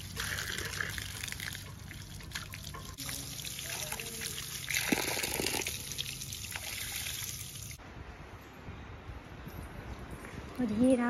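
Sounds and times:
water splashing onto concrete: 0.0 - 7.8.

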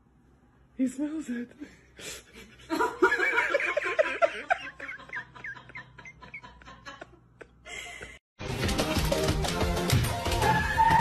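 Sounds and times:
person laughing: 2.4 - 8.2
music: 8.4 - 11.0.

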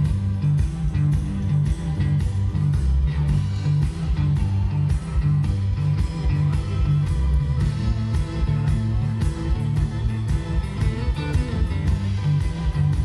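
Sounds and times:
electric guitar: 0.0 - 13.0
heavy bass: 0.0 - 13.0
steady drum beat: 0.0 - 13.0.

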